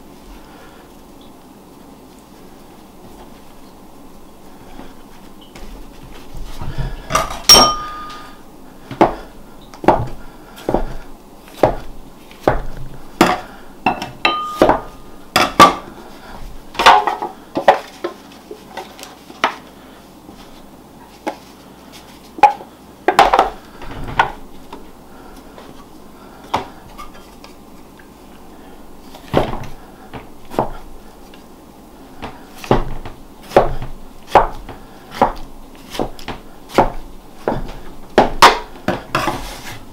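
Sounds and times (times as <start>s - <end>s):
knife chopping on wooden board: 11.6s - 15.9s, 29.3s - 30.8s, 32.2s - 39.5s.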